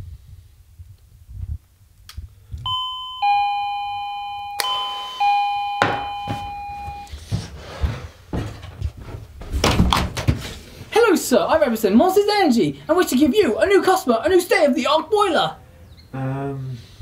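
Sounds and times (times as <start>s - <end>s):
two-tone doorbell chime: 2.7s - 7.2s
footsteps and shuffling: 4.9s - 11.8s.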